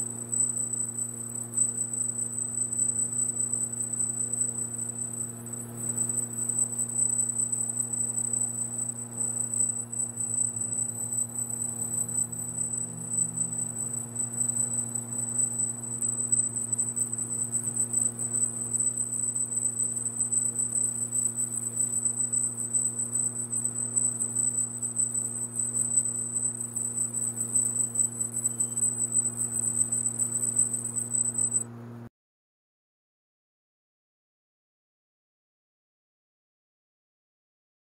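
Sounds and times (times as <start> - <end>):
low electrical hum: 0.0 - 32.1
high-pitched laser whine: 2.8 - 31.6.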